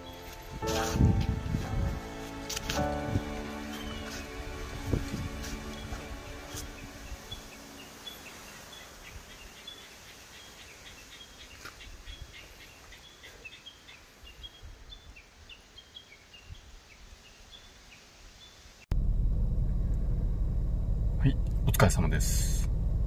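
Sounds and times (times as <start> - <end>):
steady background hiss: 0.0 - 18.9
small birds chirping: 2.3 - 18.8.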